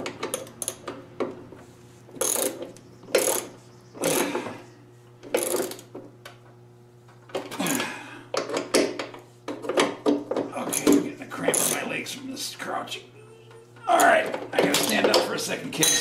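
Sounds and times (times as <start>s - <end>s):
ratchet wrench clicking: 2.2s - 4.2s.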